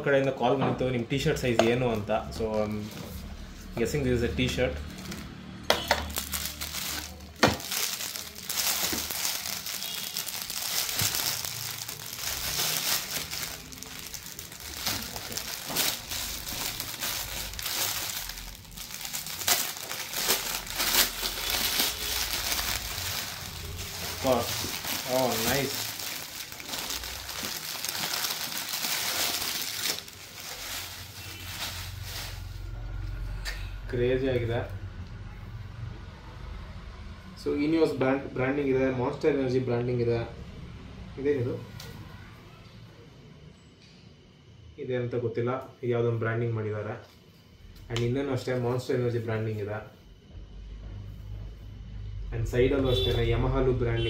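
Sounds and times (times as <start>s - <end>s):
packaging crinkling and rustling: 4.8s - 32.8s.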